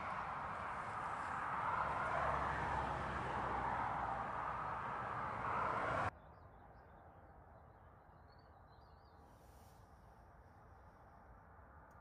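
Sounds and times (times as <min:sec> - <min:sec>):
road traffic rushing: 0:00.0 - 0:06.1.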